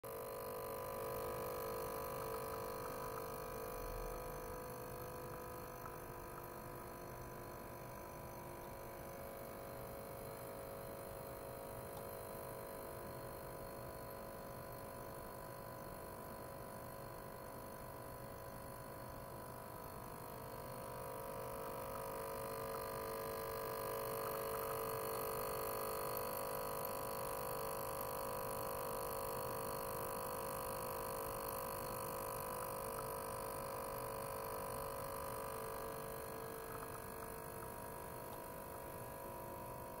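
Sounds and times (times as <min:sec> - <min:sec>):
ultrasonic cleaner humming: 0:00.0 - 0:40.0.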